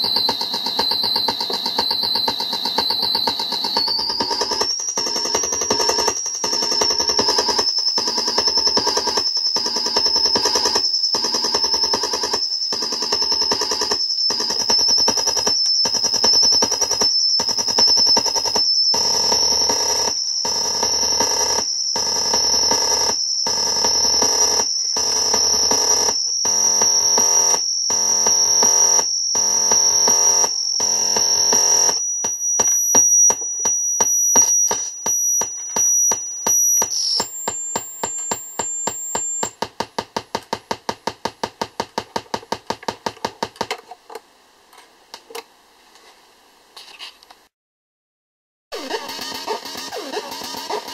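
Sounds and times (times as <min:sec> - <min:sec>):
fast electronic clicks: 0:00.0 - 0:43.8, 0:48.8 - 0:50.9
thin high tone: 0:32.0 - 0:39.6.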